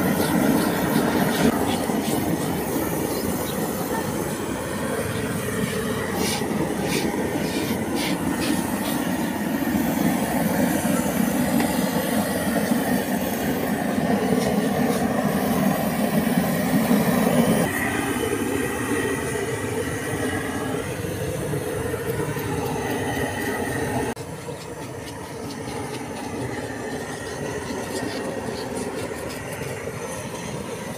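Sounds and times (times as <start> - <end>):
gas torch rushing: 0.0 - 17.8.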